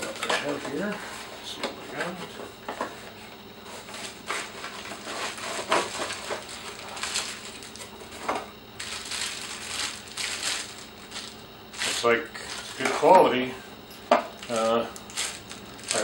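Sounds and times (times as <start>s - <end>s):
plastic wrap crinkling: 4.8s - 8.0s, 8.8s - 12.8s, 14.4s - 16.0s.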